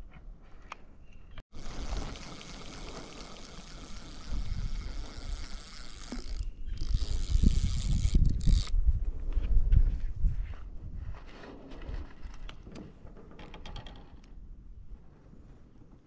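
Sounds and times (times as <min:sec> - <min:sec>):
fishing reel whirring and clicking: 0:01.6 - 0:08.7.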